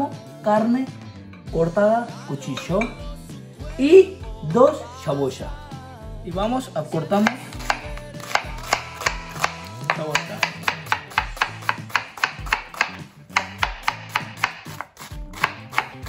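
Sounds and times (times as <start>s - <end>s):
background music: 0.0s - 16.0s
knife chopping on wooden board: 7.2s - 16.0s.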